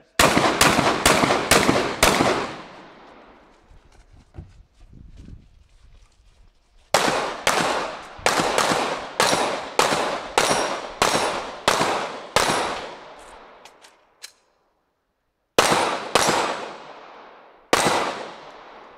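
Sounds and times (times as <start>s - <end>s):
gunshots with echo: 0.1s - 3.4s, 7.0s - 13.6s, 15.6s - 18.9s.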